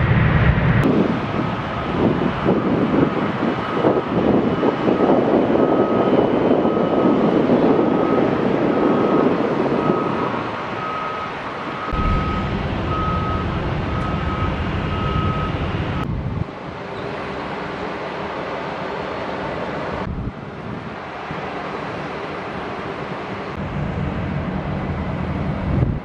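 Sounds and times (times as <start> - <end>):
low rumble: 0.0 - 3.2, 11.9 - 16.5
jet aircraft rushing: 0.0 - 26.0
high beep: 11.8 - 15.6.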